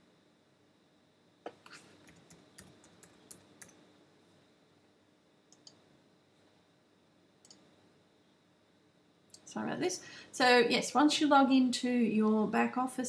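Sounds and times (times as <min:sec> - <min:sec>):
computer keys clicking: 0:02.0 - 0:03.8, 0:05.5 - 0:05.8, 0:07.4 - 0:07.6.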